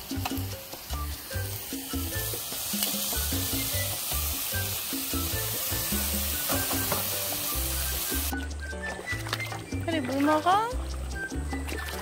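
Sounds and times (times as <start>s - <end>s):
food sizzling in frying pan: 0.0s - 8.4s
background music: 0.0s - 12.0s.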